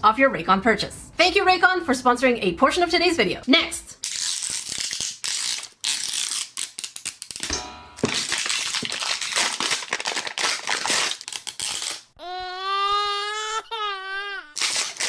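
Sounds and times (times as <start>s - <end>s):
plastic wrap peeling: 4.0s - 7.4s, 8.0s - 12.1s, 14.6s - 15.0s
plastic packaging tearing: 4.0s - 12.2s, 14.6s - 15.0s.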